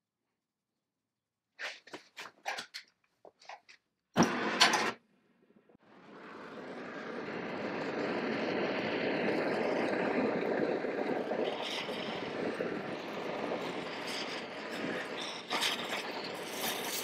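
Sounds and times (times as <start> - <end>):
torch flame hissing: 5.9 - 17.0.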